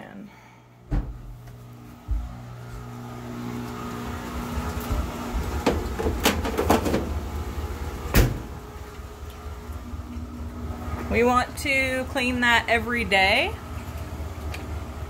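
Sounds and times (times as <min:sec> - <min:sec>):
low hum: 0:00.0 - 0:15.0.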